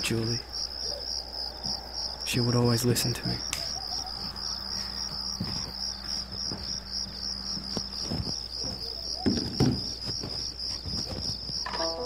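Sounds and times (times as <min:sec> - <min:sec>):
crickets chirping: 0:00.0 - 0:12.0
soft thumps: 0:07.5 - 0:11.8.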